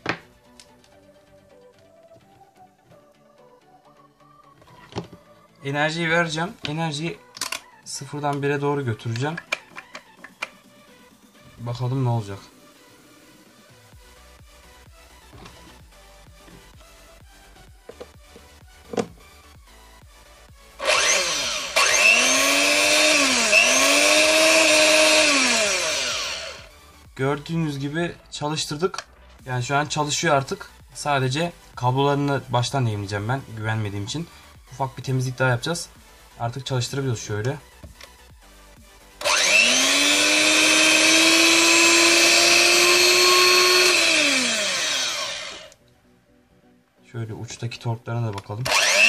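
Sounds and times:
hand mixer motor whining: 20.8 - 26.7, 39.2 - 45.8, 48.6 - 49.0.

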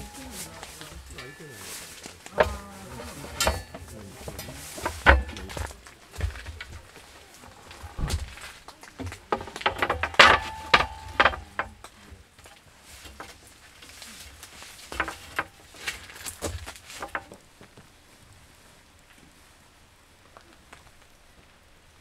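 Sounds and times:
wooden boards knocking on metal: 0.0 - 7.0, 9.0 - 11.8, 14.9 - 15.5.

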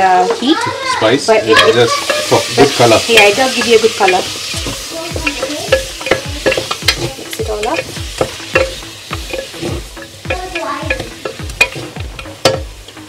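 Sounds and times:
chicken sizzling: 0.0 - 13.0
wooden spatula scraping metal pot: 1.6 - 12.7.

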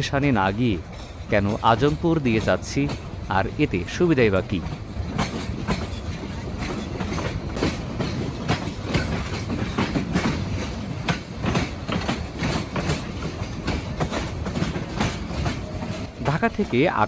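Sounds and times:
train rumble: 0.0 - 17.0
train wheels clattering over joints: 0.0 - 17.0.

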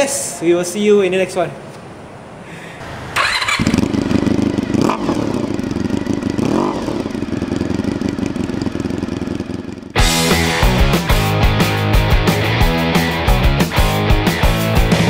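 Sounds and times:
motorcycle engine idling and revving: 2.8 - 12.9
rock music: 10.0 - 15.0.

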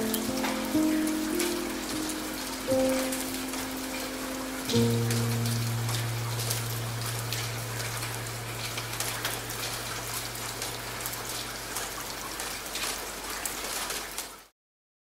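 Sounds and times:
steady rain with sharp drop hits: 0.0 - 14.5
low hum: 4.9 - 11.5.

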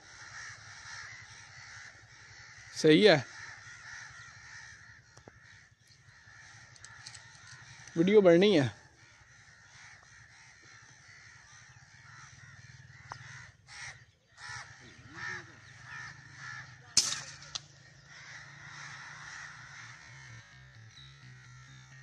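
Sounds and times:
crows cawing: 0.0 - 22.0
sharp crack: 16.9 - 17.8.

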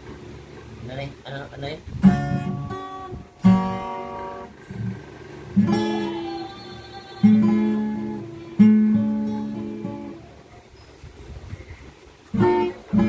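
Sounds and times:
acoustic guitar chords ringing: 2.0 - 10.4, 12.3 - 13.0.

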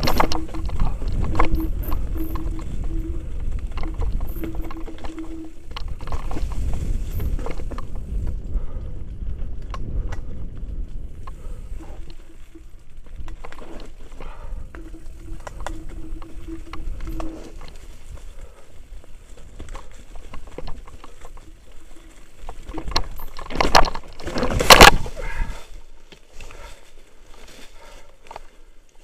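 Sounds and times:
tyres crunching over stones: 0.0 - 8.3, 11.1 - 28.7
steady buzzing tone: 0.0 - 9.0, 11.1 - 25.1
wind rumbling on microphone: 0.0 - 26.0
bike rattling and clicking: 0.0 - 29.0.

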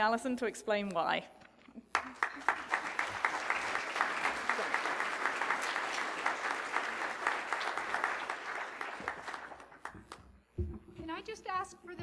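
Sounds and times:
audience applauding: 1.9 - 10.1.

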